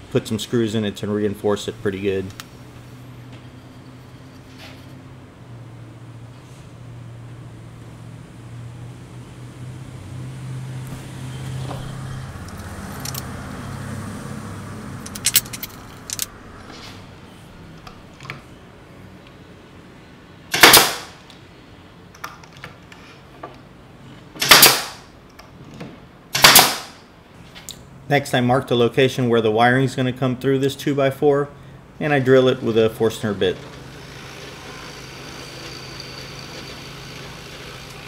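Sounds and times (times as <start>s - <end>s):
nail gun firing: 20.5s - 21.2s, 24.4s - 25.1s, 26.3s - 27.0s.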